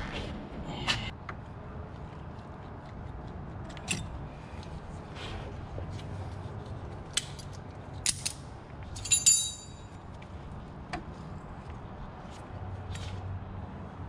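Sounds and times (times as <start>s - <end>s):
steady low hum: 0.0s - 14.0s
metal tools clinking: 7.4s - 10.0s.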